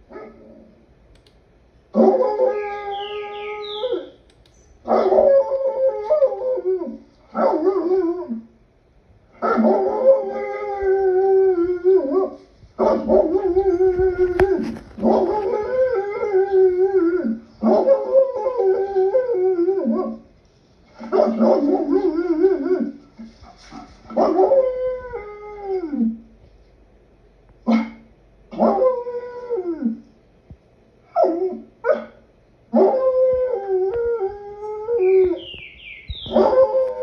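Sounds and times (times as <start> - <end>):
wolves howling: 2.0 - 4.2, 9.5 - 20.2, 32.8 - 37.0.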